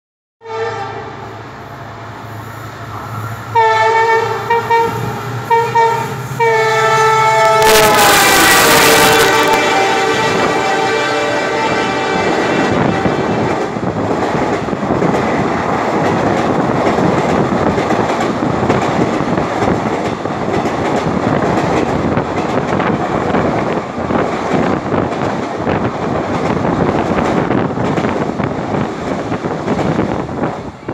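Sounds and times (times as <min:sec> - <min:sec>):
locomotive horn: 0:00.4 - 0:01.2, 0:03.5 - 0:13.5
train wheels clattering on rail: 0:12.7 - 0:30.9.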